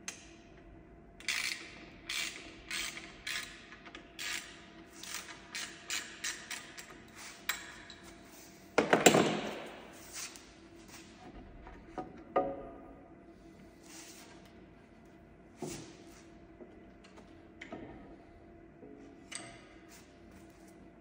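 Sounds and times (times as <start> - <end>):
ratchet wrench clicking: 1.2 - 3.6, 4.2 - 6.9.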